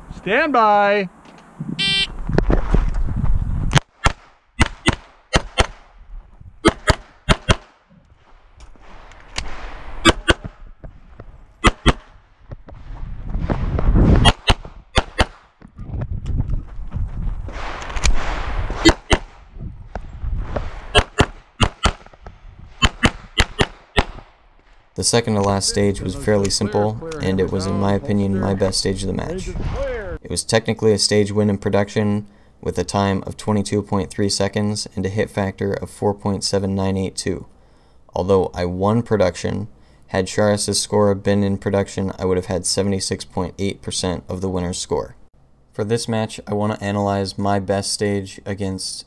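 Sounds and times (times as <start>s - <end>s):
shot timer beep: 1.8s - 2.1s
pistol shots: 4.0s - 5.9s, 6.6s - 7.8s, 9.4s - 10.6s, 11.6s - 12.2s, 14.2s - 15.6s, 17.6s - 19.4s, 20.8s - 22.2s, 22.8s - 24.4s.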